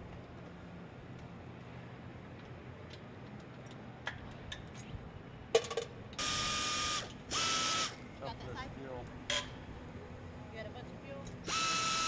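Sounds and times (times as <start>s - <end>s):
power ratchet wrench whining: 6.2s - 8.0s, 11.4s - 12.0s.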